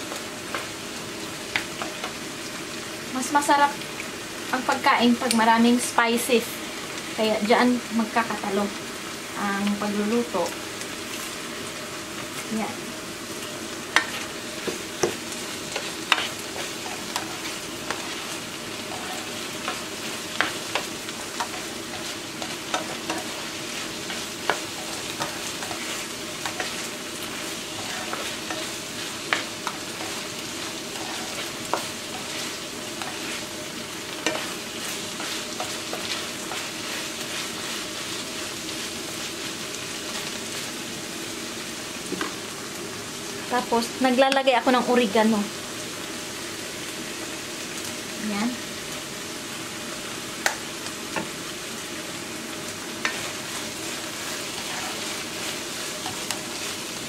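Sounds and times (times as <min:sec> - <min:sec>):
meat sizzling in a frying pan: 0:00.0 - 0:57.0
spatula scraping and tapping pan: 0:01.5 - 0:02.2, 0:13.9 - 0:30.3, 0:30.9 - 0:33.5, 0:34.1 - 0:37.9, 0:53.0 - 0:56.7.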